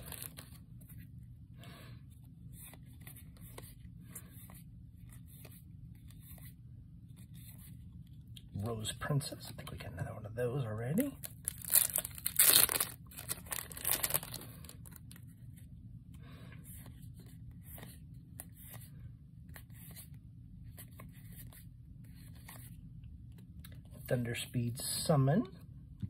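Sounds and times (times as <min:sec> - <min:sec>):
cards rustling and flicking: 0:00.0 - 0:01.0, 0:02.4 - 0:07.9, 0:11.2 - 0:15.6, 0:16.7 - 0:23.9
foil pack crinkling rips: 0:11.2 - 0:15.0.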